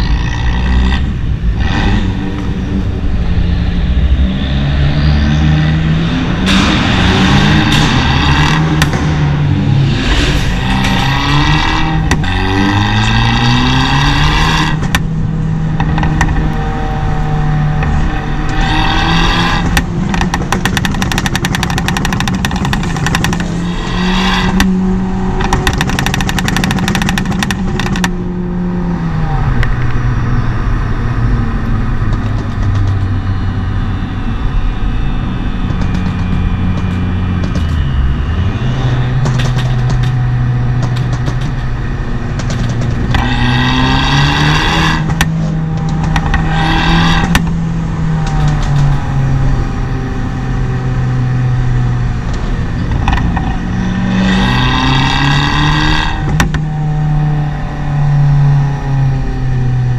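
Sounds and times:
car engine accelerating: 0.0 - 59.9
exhaust crackling: 0.0 - 59.9.

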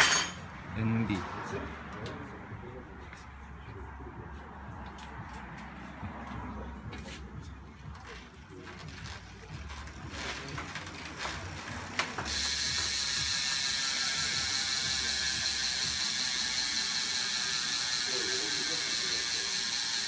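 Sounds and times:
bicycle freehub ratchet clicking: 12.1 - 20.0.

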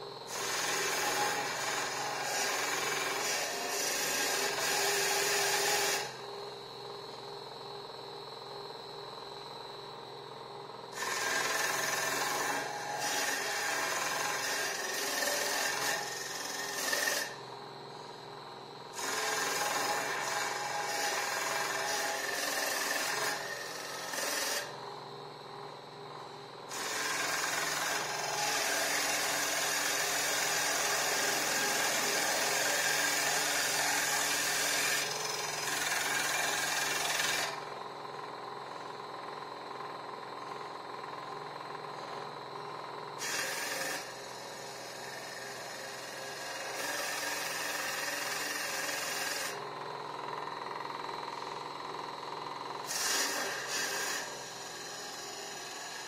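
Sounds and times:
lathe cutter cutting wood: 0.3 - 6.1, 11.0 - 17.4, 19.0 - 24.7, 26.7 - 37.6, 43.2 - 49.6, 52.9 - 56.0.

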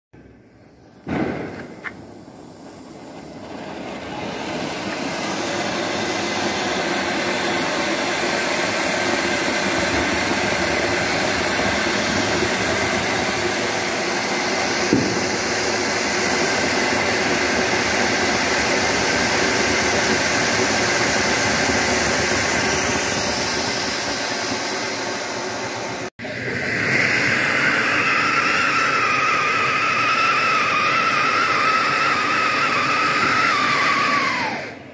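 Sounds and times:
firework fountain hissing: 0.2 - 34.9
short pop: 1.0 - 2.0, 14.9 - 15.3.

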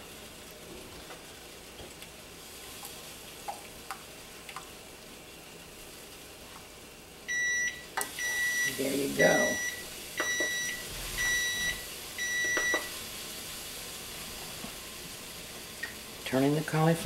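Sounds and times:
long high timer beep: 7.3 - 12.9.

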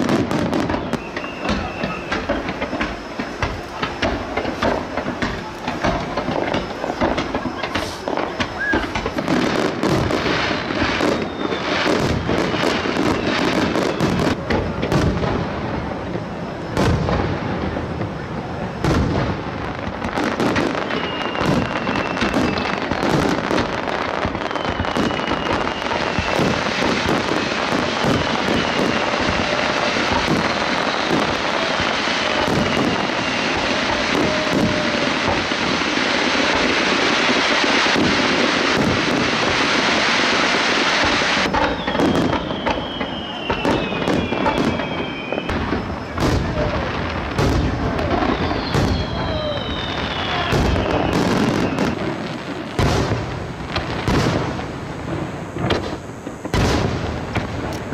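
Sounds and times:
firework shell bursts: 0.0 - 12.8
falling firework whistles: 0.0 - 57.9
firework crackling: 0.0 - 57.9.

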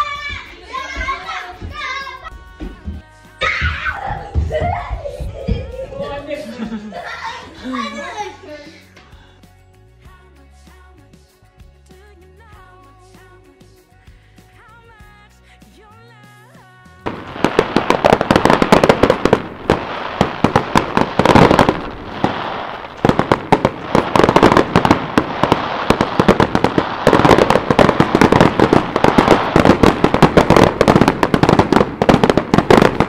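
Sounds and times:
fireworks bangs and crackles: 17.0 - 33.0.

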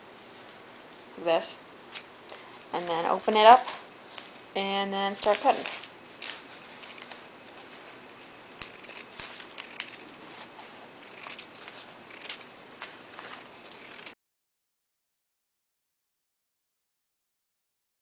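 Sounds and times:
paper rustling: 5.2 - 14.2
scissors snipping paper: 8.0 - 14.2.

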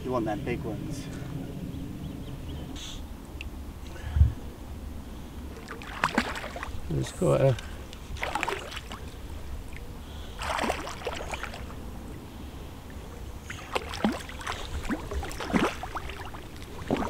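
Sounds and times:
water splashing and sloshing: 5.4 - 17.0.

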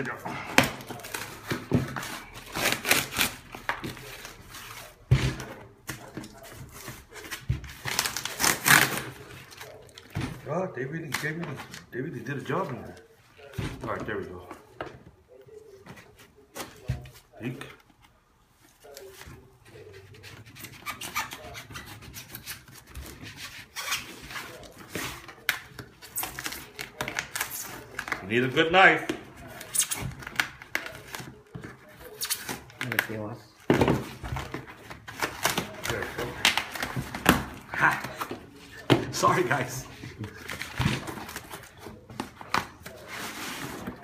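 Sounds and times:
packing tape ripping off box: 7.8 - 9.2.

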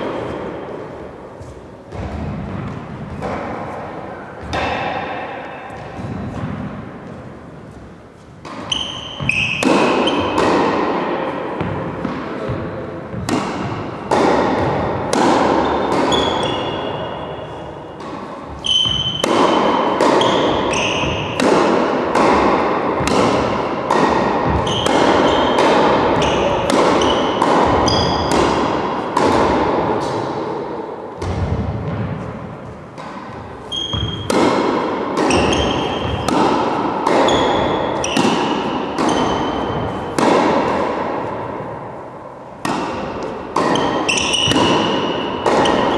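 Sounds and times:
tennis balls struck by rackets: 0.0 - 45.9
balls bouncing on wooden floor: 35.2 - 38.4.

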